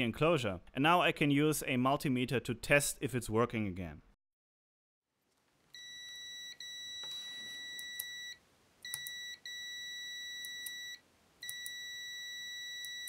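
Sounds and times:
multimeter continuity beep: 5.8s - 13.0s.

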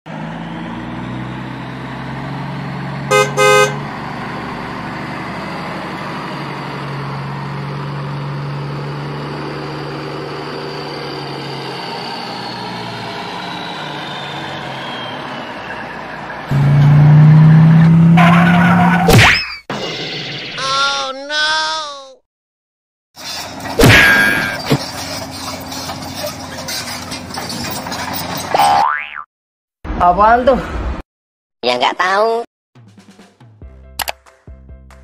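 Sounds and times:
dump truck engine running: 0.1s - 18.2s, 23.4s - 28.5s
truck horn toots: 3.1s - 3.9s.

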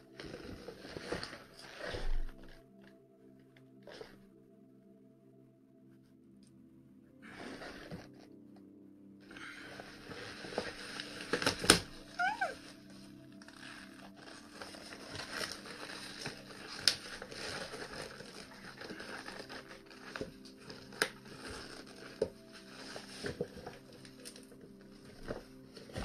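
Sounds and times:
rubber gas mask rustling: 0.0s - 3.0s, 7.2s - 8.4s, 9.3s - 26.0s.

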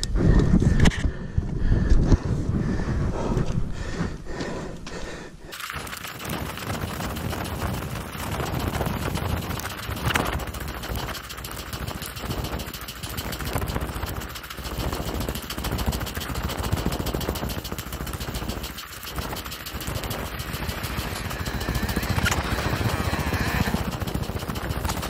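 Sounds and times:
wind on microphone: 0.0s - 4.1s
bike clattering and rattling: 5.5s - 25.0s.

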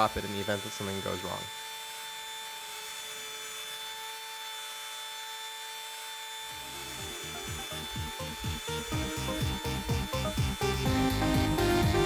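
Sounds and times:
rotary tool whine carving wood: 0.0s - 12.0s
music with a beat: 7.0s - 12.0s.

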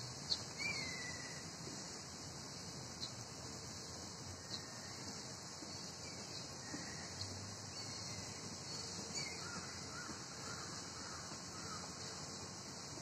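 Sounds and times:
steady outdoor hiss: 0.0s - 13.0s
faint bird chirps: 0.2s - 1.5s.

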